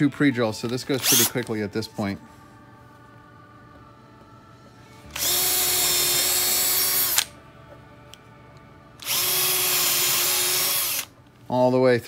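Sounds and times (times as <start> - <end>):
cordless drill drilling wood: 1.0 - 1.3, 5.1 - 7.3, 9.0 - 11.1.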